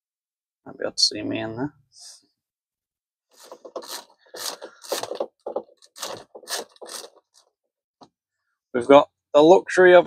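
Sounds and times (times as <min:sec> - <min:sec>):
roller blind scraping: 0:03.4 - 0:07.5.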